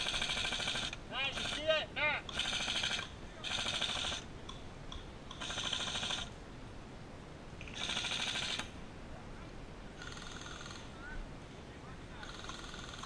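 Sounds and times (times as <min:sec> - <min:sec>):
airsoft rifle full-auto bursts: 0:00.0 - 0:04.3, 0:05.4 - 0:06.3, 0:07.6 - 0:08.7.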